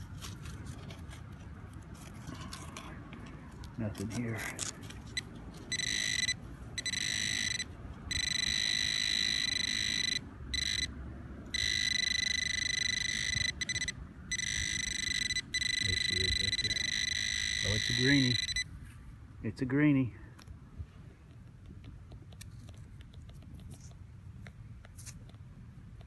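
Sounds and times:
pinpointer high buzzing tone: 5.7 - 18.7.

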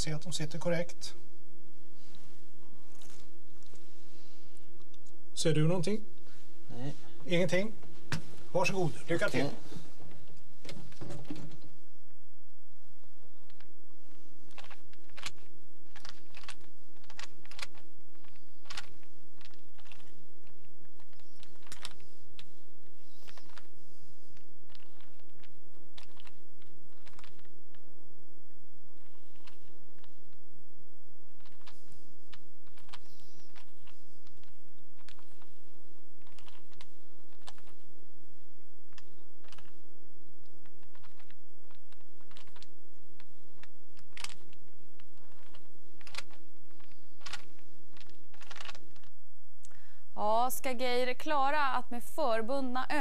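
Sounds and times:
low electrical hum: 0.0 - 53.0
puzzle cube clicking: 14.4 - 28.0, 28.9 - 30.4, 31.2 - 37.9, 38.8 - 49.8.

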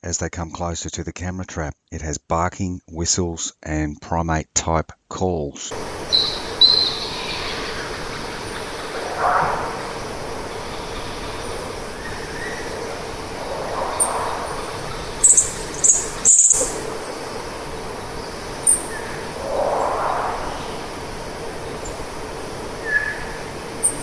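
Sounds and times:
high chirps and whistles: 6.1 - 7.8, 8.5 - 17.4, 18.2 - 22.1, 22.8 - 24.0
animal barking: 8.8 - 17.0.

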